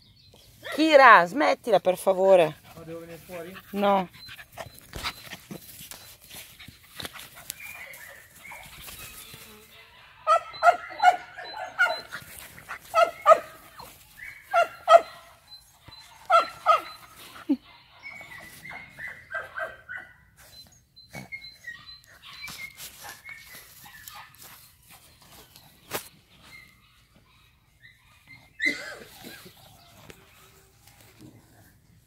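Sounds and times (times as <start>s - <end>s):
dog barking: 9.9s - 12.1s, 12.9s - 15.4s, 16.0s - 17.0s, 17.6s - 20.2s
dog yipping: 9.9s - 12.2s, 12.8s - 15.3s, 15.9s - 20.2s, 26.4s - 30.6s.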